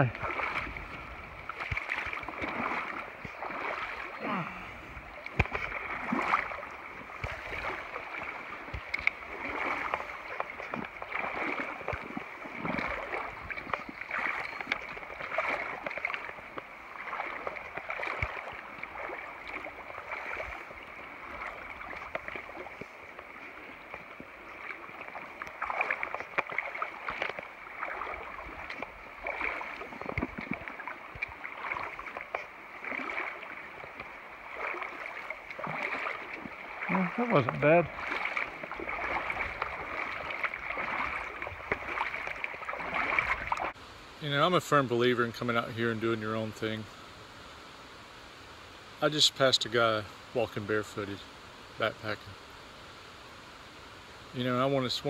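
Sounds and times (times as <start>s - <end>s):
water sloshing around legs: 0.0s - 43.8s
river current rushing: 0.0s - 55.0s.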